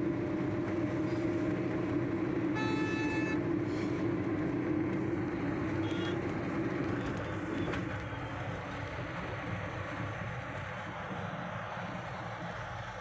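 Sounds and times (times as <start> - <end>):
car engine and tyres: 0.0 - 13.0
road traffic drone: 0.0 - 13.0.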